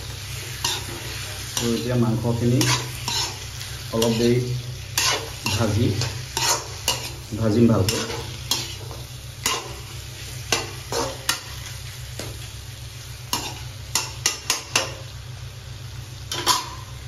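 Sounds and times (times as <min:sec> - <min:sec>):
meat sizzling in a pan: 0:00.0 - 0:17.0
steady low hum: 0:00.0 - 0:17.0
utensil scraping a pan: 0:02.5 - 0:03.4, 0:05.0 - 0:07.2, 0:07.9 - 0:09.8.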